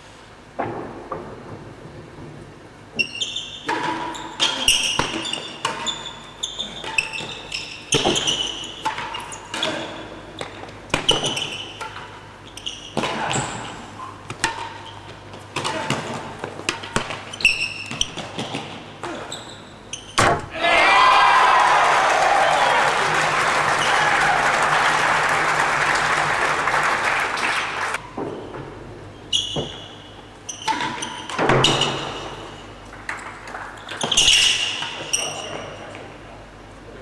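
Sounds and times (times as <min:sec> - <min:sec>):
ball struck by rackets: 0:20.2 - 0:20.5.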